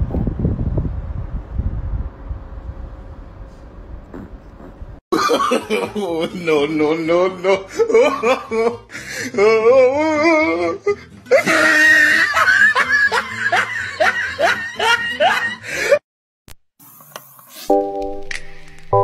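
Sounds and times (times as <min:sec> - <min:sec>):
person laughing hard: 0:05.2 - 0:16.0.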